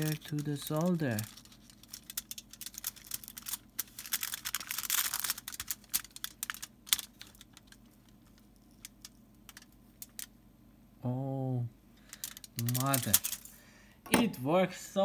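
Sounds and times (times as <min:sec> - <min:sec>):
solder crackling and popping: 0:00.0 - 0:10.4.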